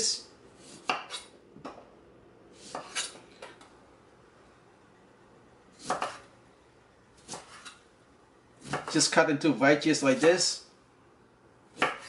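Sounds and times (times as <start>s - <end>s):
knife cutting lime: 0.6s - 1.3s, 2.6s - 3.2s, 5.8s - 6.3s, 7.2s - 7.8s, 8.6s - 9.0s, 11.8s - 12.0s.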